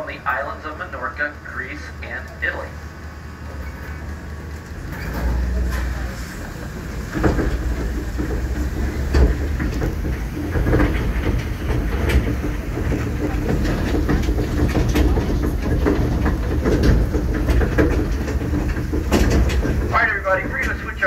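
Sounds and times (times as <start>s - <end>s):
road rumble: 0.0s - 21.0s
tram engine hum: 0.0s - 21.0s
car frames rattling: 3.5s - 21.0s.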